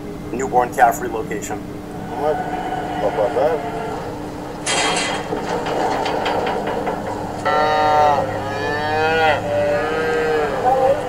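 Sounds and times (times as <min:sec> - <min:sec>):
calf bawling: 0:01.8 - 0:05.3, 0:06.5 - 0:11.0
clattering knocks: 0:04.0 - 0:08.9.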